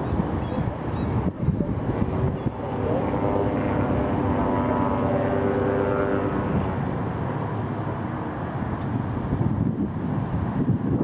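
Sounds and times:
airliner jet engines in flight: 0.0 - 11.0.

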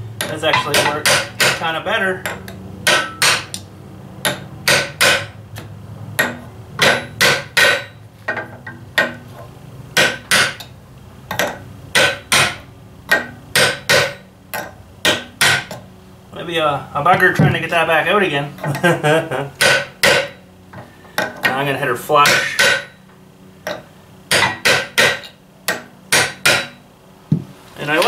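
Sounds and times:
hammer blows on metal: 22.2 - 23.0.

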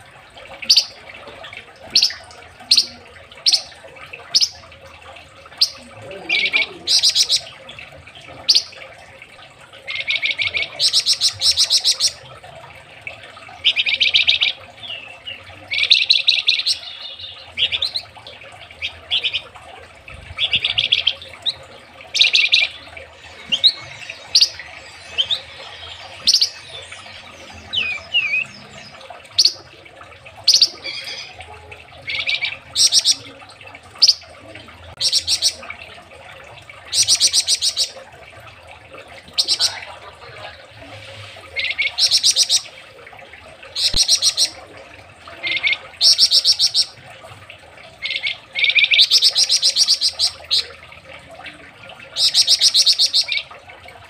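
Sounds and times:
songbird rattling trills: 22.1 - 29.6.

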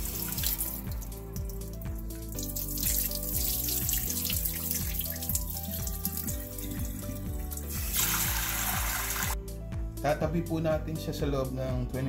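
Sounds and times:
music with steady beat: 0.0 - 12.0
rinse water tipped out: 2.4 - 9.4.

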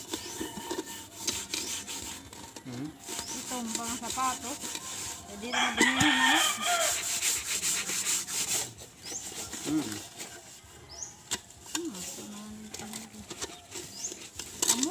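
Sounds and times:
hand scrubbing a pot: 0.0 - 14.9
rooster crowing: 5.0 - 7.3.

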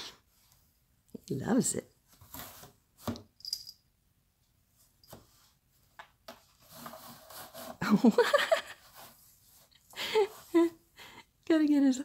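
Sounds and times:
cat scratching cardboard: 6.3 - 8.1, 8.7 - 10.5.

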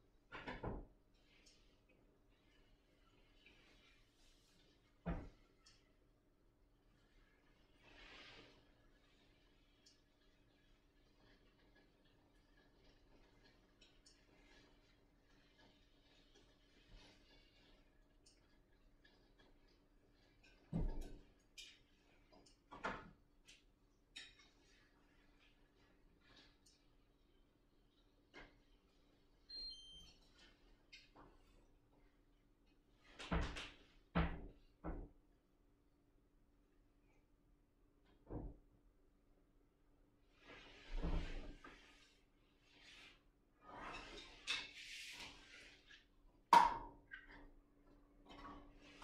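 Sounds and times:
clicks and knocks at kitchen counter: 0.3 - 1.6, 20.3 - 24.8.

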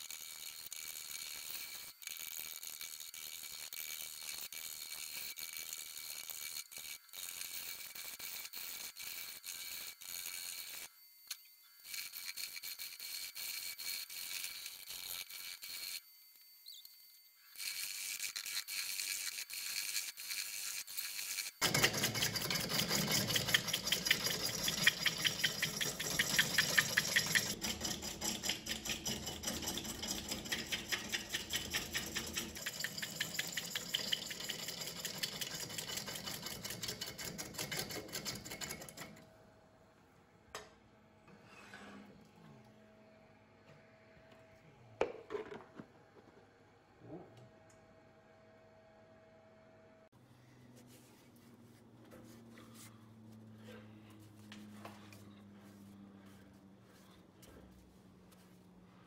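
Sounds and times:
gouge cutting wood on lathe: 17.6 - 39.2.

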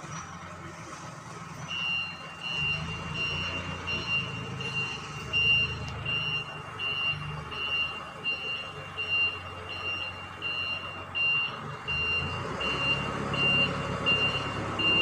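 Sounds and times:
engine rumbling: 0.0 - 15.0
forklift reversing alarm beeping: 1.6 - 15.0.

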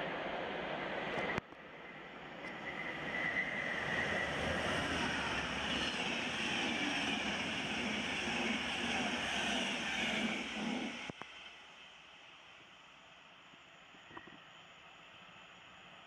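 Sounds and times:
train wheels rushing on rails: 0.1 - 12.0.

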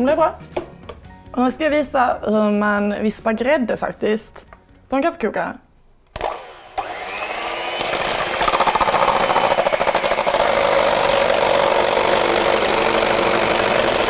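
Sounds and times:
electric hand mixer whipping cream: 6.2 - 14.0.

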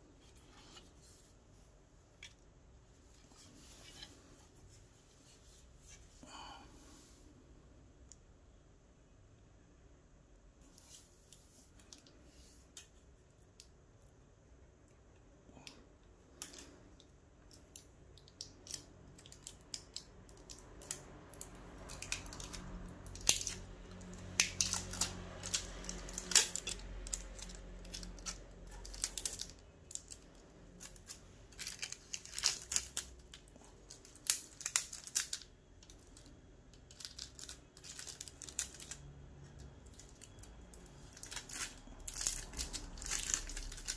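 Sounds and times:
wrapping rustling and tearing: 17.6 - 43.9.

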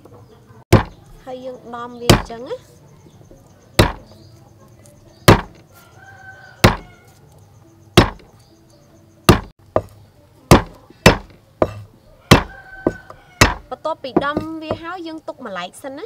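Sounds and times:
cleaver crushing garlic on wood: 3.8 - 4.3, 5.2 - 5.7, 6.6 - 7.1, 8.0 - 8.5, 9.3 - 14.9.

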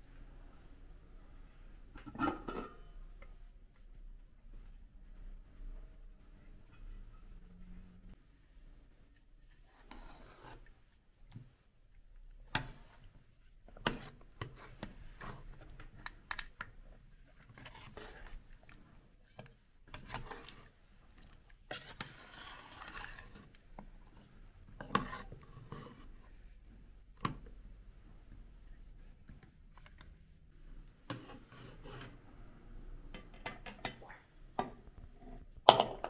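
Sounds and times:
metal spoon scraping metal pot: 21.7 - 23.5.

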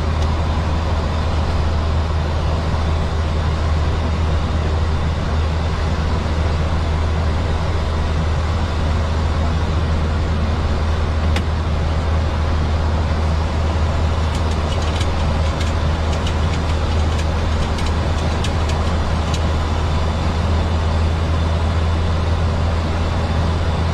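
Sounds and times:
constant low drone: 0.0 - 23.9
sharp ticks: 14.3 - 19.5.

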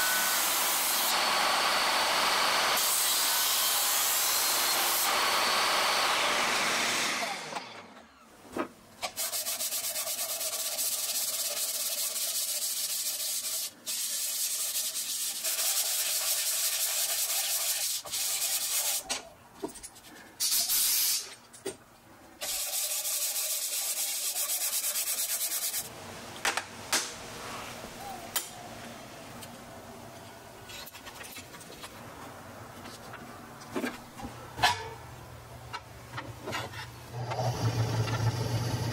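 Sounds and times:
table saw cutting: 0.0 - 8.0, 37.2 - 38.9
sanding by hand on sandpaper: 9.1 - 19.0, 22.4 - 25.9.

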